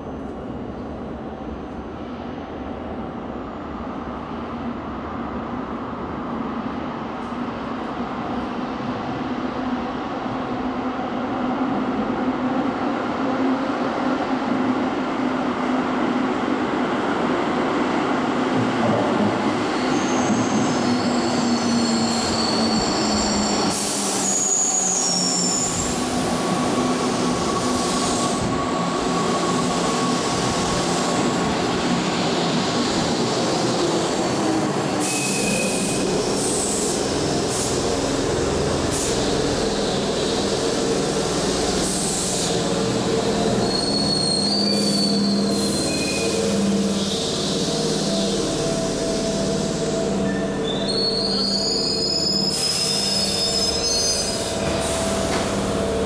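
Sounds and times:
wheel and brake squeals: 19.7 - 26.0, 43.5 - 47.3, 50.2 - 55.2.

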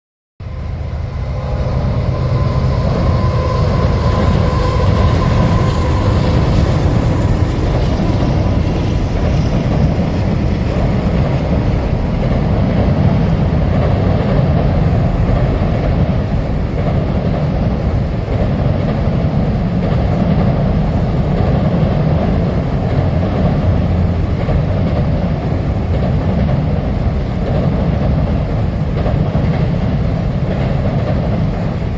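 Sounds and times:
train wheels rumbling on bridge: 0.4 - 31.9
thin high ringing tone: 0.5 - 7.4.

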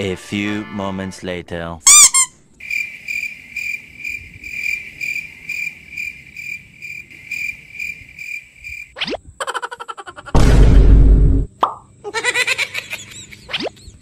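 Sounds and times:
cricket chirping: 2.0 - 10.4, 11.5 - 14.0.

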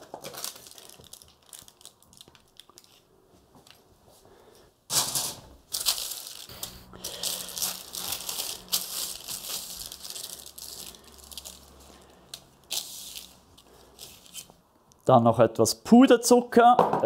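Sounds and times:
cake crust crunching and scraping: 5.7 - 14.6.

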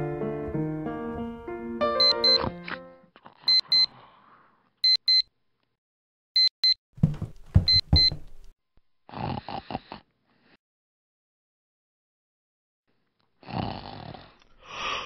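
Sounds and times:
alarm clock beeping: 2.0 - 2.5, 3.5 - 3.9, 4.8 - 5.2, 7.7 - 8.2.

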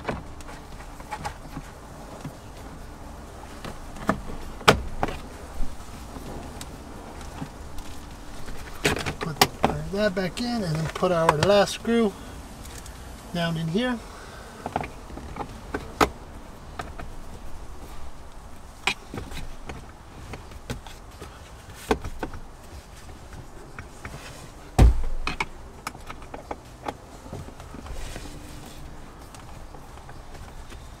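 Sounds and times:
heavy thump: 24.8 - 25.4.

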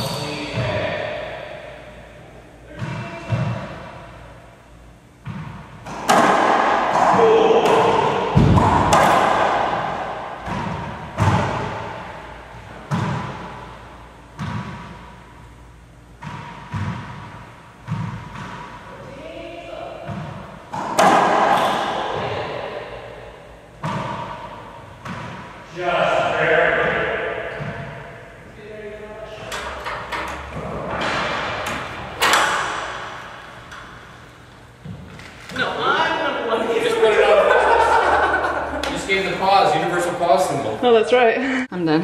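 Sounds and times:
racquetball smacks echoing: 5.2 - 15.2, 16.2 - 18.9, 20.0 - 23.2, 23.8 - 25.6, 29.6 - 35.1.

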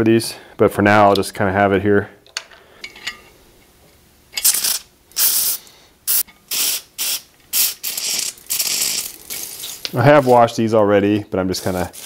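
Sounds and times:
aerosol spray hissing bursts: 4.5 - 10.5, 11.6 - 12.0.

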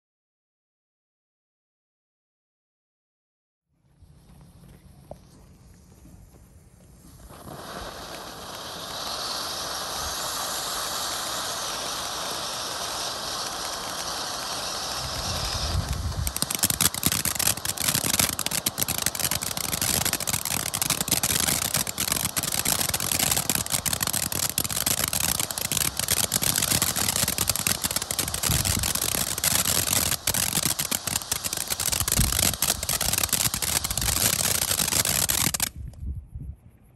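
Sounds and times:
firework fountain spark hiss: 5.2 - 36.0
dense firework crackling: 5.6 - 36.0.

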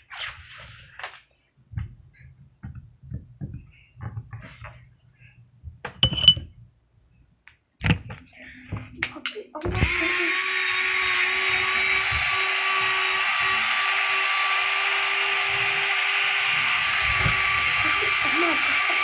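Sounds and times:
electric pencil sharpener grinding: 9.8 - 19.0.

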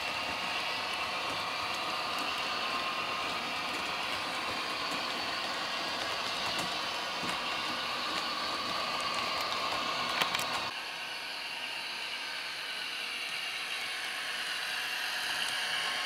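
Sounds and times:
model train diesel engine sound: 0.0 - 16.0
model train rolling on track: 0.0 - 16.0.

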